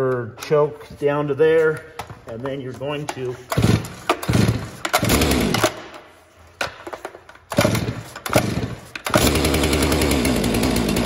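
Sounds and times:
starter cord pulls: 0:02.4 - 0:06.0, 0:06.8 - 0:10.4
chainsaw engine running: 0:03.6 - 0:05.8, 0:07.6 - 0:11.0.

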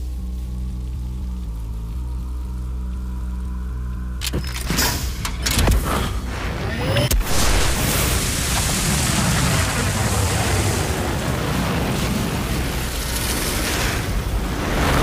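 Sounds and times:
deep rumble: 0:00.0 - 0:15.0
loud steady rushing noise: 0:05.8 - 0:15.0.

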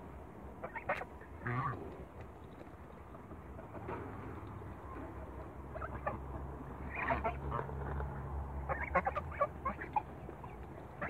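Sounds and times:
low steady hum: 0:00.0 - 0:11.0
geese calling: 0:00.6 - 0:01.8, 0:05.7 - 0:07.8, 0:08.6 - 0:11.0.

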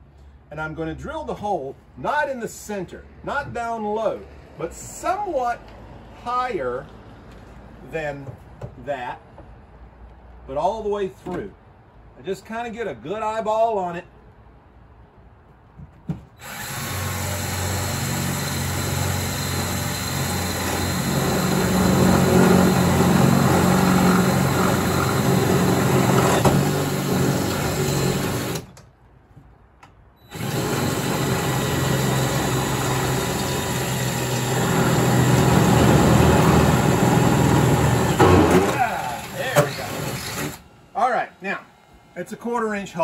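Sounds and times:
power drill drilling through metal: 0:16.4 - 0:28.8, 0:30.2 - 0:40.6.

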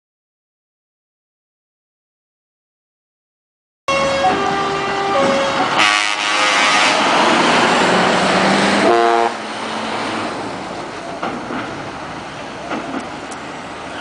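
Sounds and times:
truck air horn: 0:03.9 - 0:07.1, 0:08.8 - 0:09.5
truck engine passing: 0:03.9 - 0:14.0.

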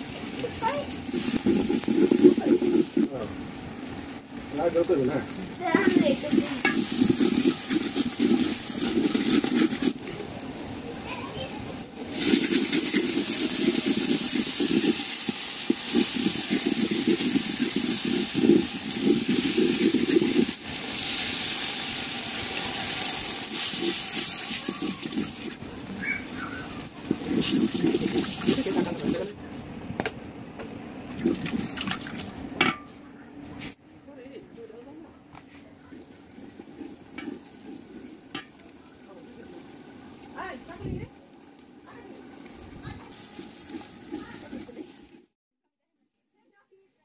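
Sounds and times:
onions sizzling in hot oil: 0:00.0 - 0:29.4, 0:35.9 - 0:45.3
spatula scraping pot: 0:00.8 - 0:03.3, 0:05.6 - 0:10.1, 0:12.1 - 0:20.7, 0:23.0 - 0:29.4, 0:35.9 - 0:38.6, 0:42.2 - 0:45.3.

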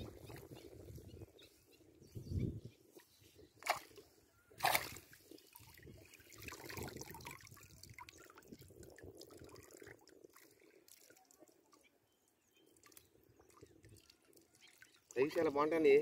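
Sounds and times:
water splash: 0:03.6 - 0:04.0, 0:04.6 - 0:08.2
water trickling and dripping: 0:04.8 - 0:15.9.

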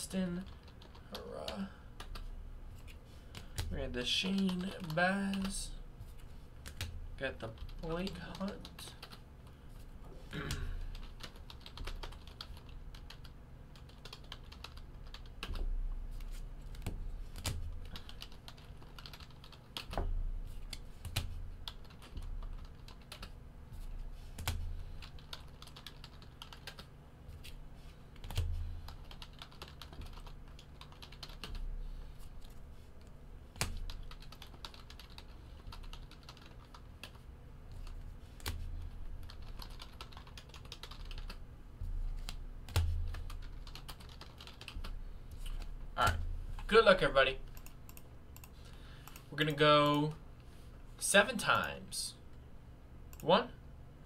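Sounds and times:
typing on computer keyboard: 0:00.4 - 0:02.3, 0:03.4 - 0:05.6, 0:10.9 - 0:15.6, 0:16.7 - 0:20.1, 0:20.7 - 0:23.4, 0:24.4 - 0:26.9, 0:28.2 - 0:31.6, 0:33.6 - 0:37.2, 0:39.2 - 0:41.4, 0:42.7 - 0:44.8.

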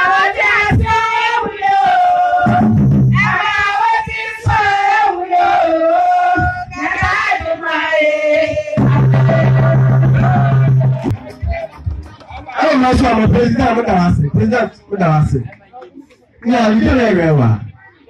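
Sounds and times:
woman singing into microphone: 0:00.0 - 0:10.8.

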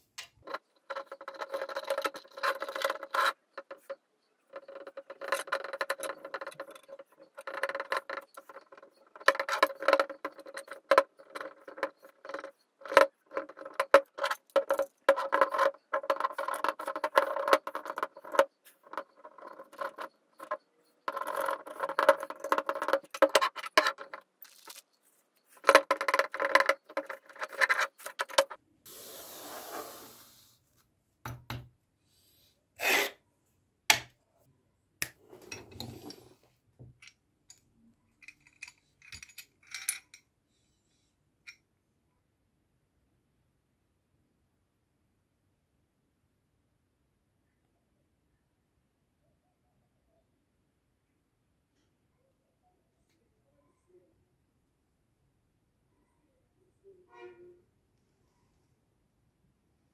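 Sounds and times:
metal parts clinking: 0:00.4 - 0:28.6, 0:38.2 - 0:40.2.

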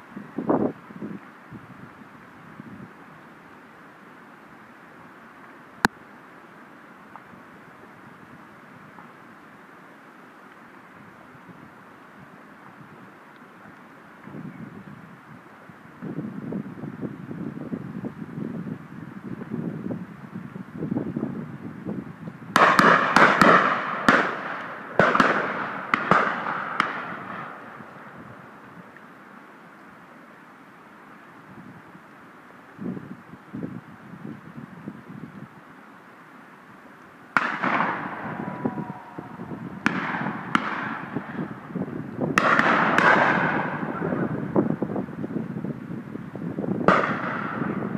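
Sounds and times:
shotguns firing with echo: 0:22.6 - 0:27.6, 0:37.4 - 0:38.4, 0:39.8 - 0:41.4, 0:42.4 - 0:44.0, 0:46.9 - 0:47.8.

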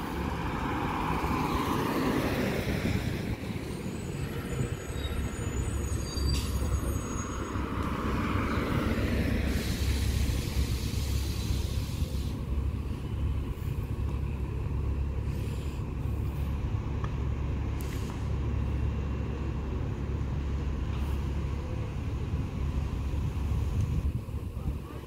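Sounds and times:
traffic low rumble: 0:00.0 - 0:25.0
bus air brake hisses: 0:04.9 - 0:07.6, 0:09.3 - 0:12.5, 0:15.2 - 0:15.9, 0:17.8 - 0:18.4.

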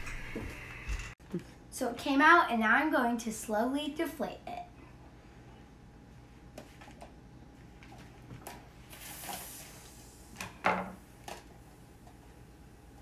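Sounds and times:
air hissing from balloon: 0:08.9 - 0:10.4.

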